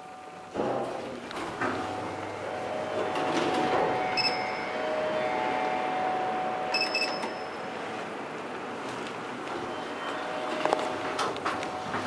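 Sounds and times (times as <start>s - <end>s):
elevator button beeps: 4.1s - 4.9s, 6.7s - 7.7s.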